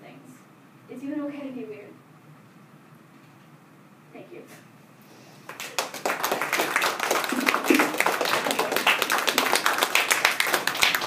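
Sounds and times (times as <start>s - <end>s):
group applauding: 5.4s - 11.0s.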